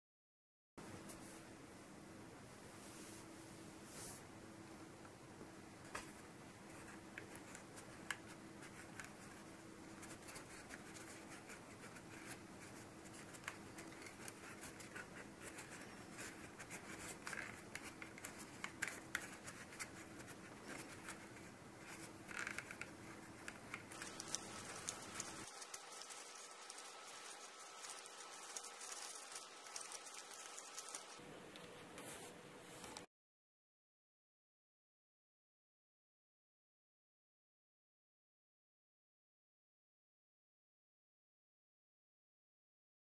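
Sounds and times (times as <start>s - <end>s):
paper scratching: 8.6s - 31.2s
card folds clicking: 21.9s - 31.2s.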